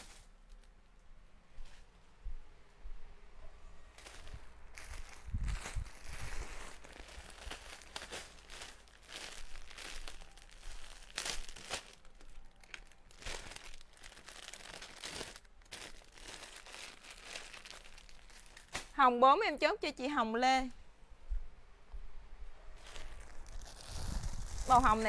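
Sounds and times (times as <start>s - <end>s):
plastic bags crinkling: 4.0s - 19.0s, 22.8s - 25.0s.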